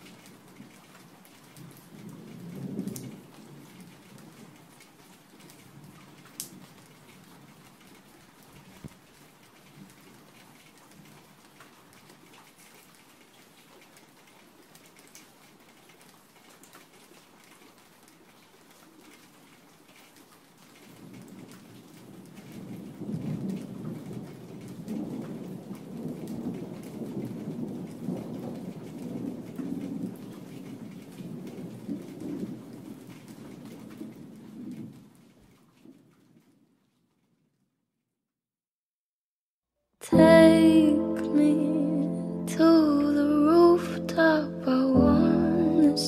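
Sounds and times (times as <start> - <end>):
steady rain: 0.0 - 37.6, 40.0 - 46.0.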